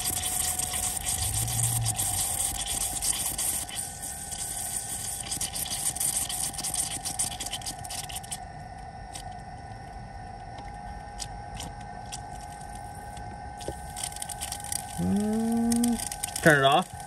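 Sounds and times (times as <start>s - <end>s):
fuel spitting and hissing: 0.0s - 8.0s
electric pump whining: 0.0s - 8.4s, 9.1s - 17.0s.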